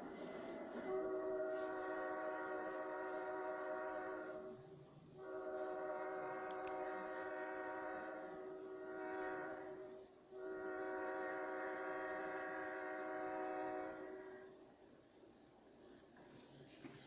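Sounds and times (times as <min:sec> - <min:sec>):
locomotive air horn blasts: 0:00.0 - 0:14.6.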